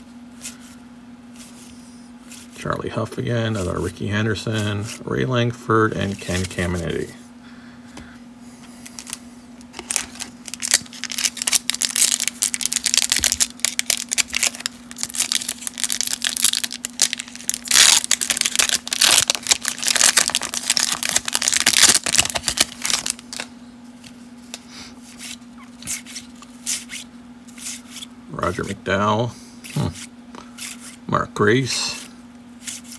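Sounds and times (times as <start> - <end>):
foil wrapper crinkling and tearing: 8.8 - 23.5.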